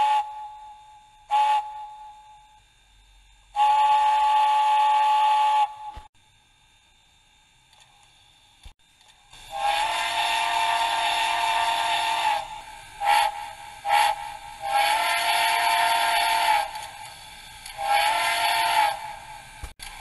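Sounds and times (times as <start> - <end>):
multi-chime steam whistle blasts: 0.0 - 2.6, 3.5 - 6.1, 9.5 - 17.0, 17.6 - 19.5
steam hiss: 3.5 - 6.1, 8.2 - 20.0.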